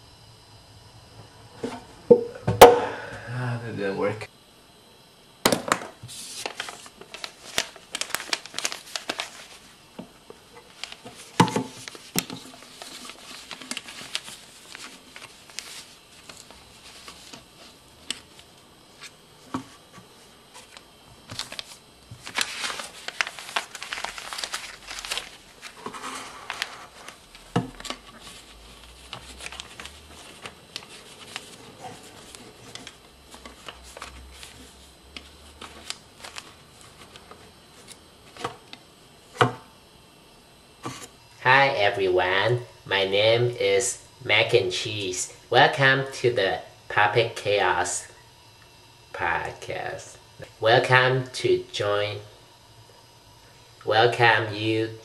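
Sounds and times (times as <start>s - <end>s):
paper rustling and crinkling: 6.0s - 9.8s, 10.5s - 38.8s, 40.8s - 41.2s.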